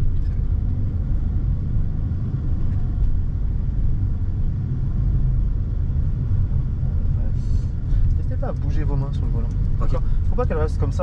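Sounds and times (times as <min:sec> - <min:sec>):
car interior engine and road rumble: 0:00.0 - 0:11.0.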